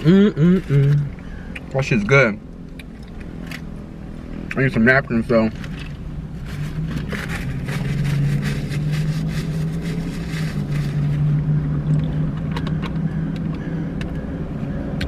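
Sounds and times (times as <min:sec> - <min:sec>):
steady low hum in car: 0:00.0 - 0:15.0
paper napkins crinkling: 0:06.4 - 0:11.3.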